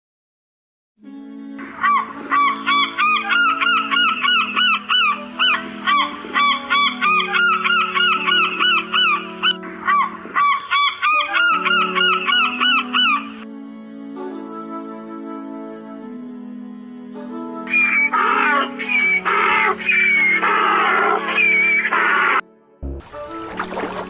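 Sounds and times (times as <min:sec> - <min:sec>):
geese honking: 0:01.6 - 0:13.4, 0:17.7 - 0:22.4.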